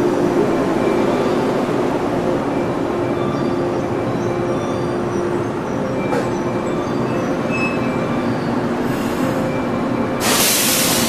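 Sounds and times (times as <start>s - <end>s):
electric train running slowly: 0.0s - 11.0s
loud hiss: 10.2s - 11.0s.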